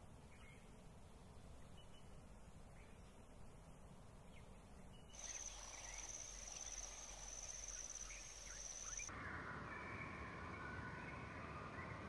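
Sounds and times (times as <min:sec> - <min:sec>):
soft bird chirps: 0:04.3 - 0:09.1
high-pitched insect trill: 0:05.2 - 0:09.1.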